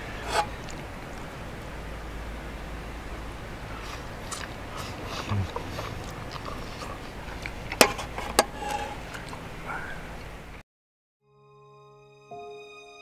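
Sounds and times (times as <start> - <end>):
mouth and handling noises: 3.8 - 10.4.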